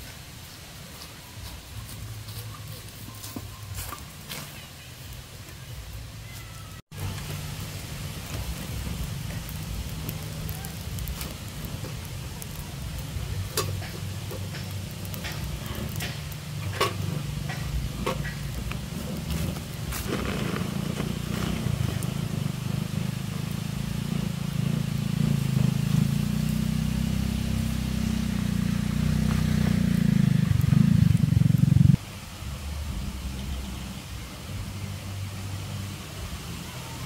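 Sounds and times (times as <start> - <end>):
campfire crackling and popping: 0.0 - 32.4
steady low rumble: 7.0 - 36.6.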